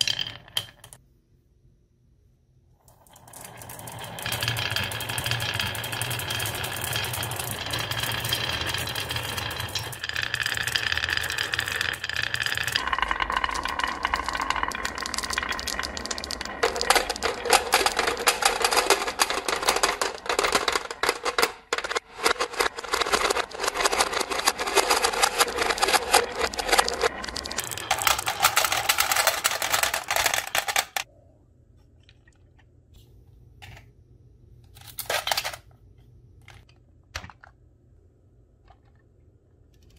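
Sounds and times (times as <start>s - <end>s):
marbles clattering against wood: 0.0s - 1.0s, 3.1s - 31.1s
marbles rolling on wooden run: 0.0s - 1.0s, 2.9s - 31.1s.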